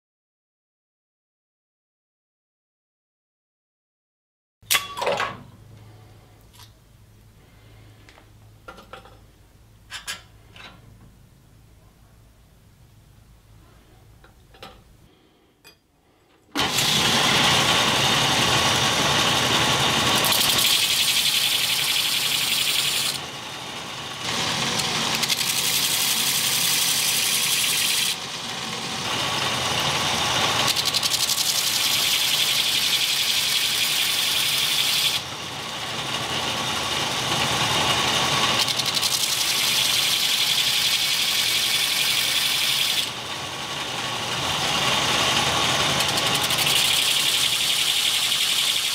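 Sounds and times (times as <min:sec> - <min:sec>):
belt grinder grinding steel: 0:16.6 - 0:48.9.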